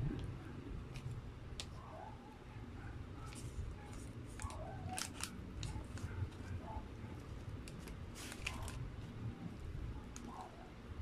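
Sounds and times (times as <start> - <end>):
paper wrapper crinkling: 3.3 - 6.6, 7.2 - 9.2.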